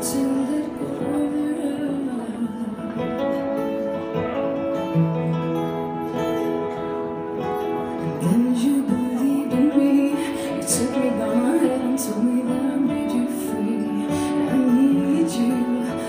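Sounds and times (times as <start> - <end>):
person singing: 0.0 - 3.6, 8.0 - 16.0
acoustic guitar chords: 0.0 - 16.0.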